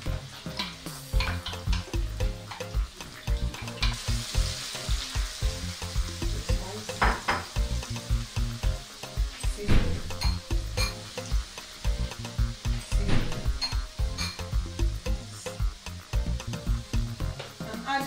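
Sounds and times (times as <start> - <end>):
sauce sizzling in hot oil: 0.0 - 18.0.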